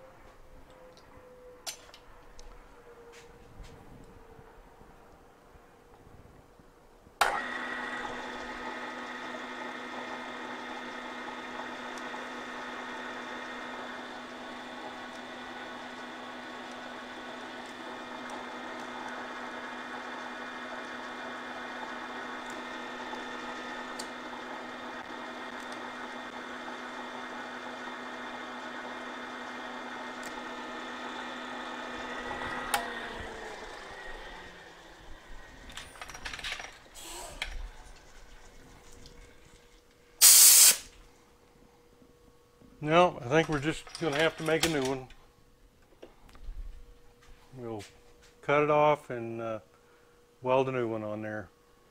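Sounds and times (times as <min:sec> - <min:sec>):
milling machine humming and whining: 0:07.2 - 0:40.2
drill bit cutting into steel: 0:40.2 - 0:40.9.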